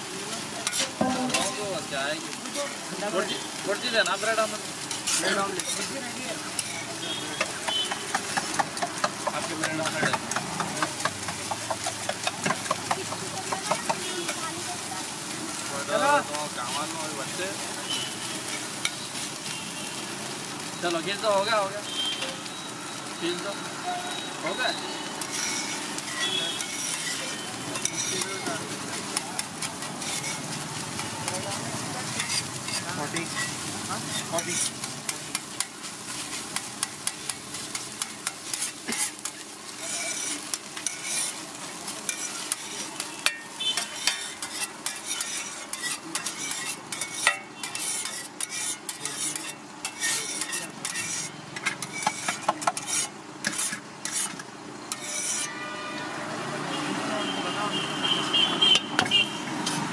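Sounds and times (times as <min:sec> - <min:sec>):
hot oil sizzling: 0:00.0 - 0:59.9
metal spatula scraping griddle: 0:00.6 - 0:01.9, 0:03.6 - 0:14.4, 0:25.1 - 0:55.9, 0:59.6 - 0:59.9.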